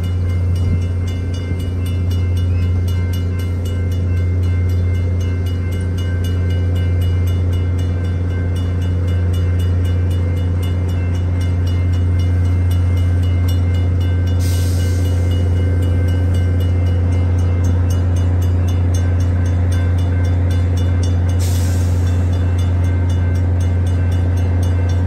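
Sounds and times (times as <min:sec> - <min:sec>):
crossing warning bell ringing: 0:00.0 - 0:25.0
passenger train rolling: 0:00.0 - 0:25.0
locomotive hiss: 0:14.2 - 0:16.6, 0:21.2 - 0:23.6.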